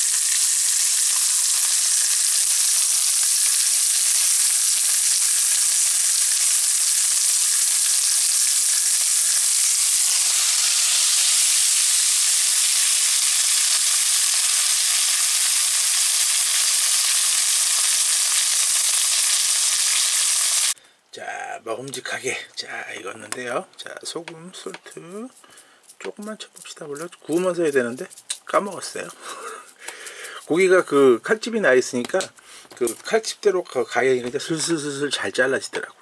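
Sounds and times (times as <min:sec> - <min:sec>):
pork sizzling in a frying pan: 0:00.0 - 0:20.8.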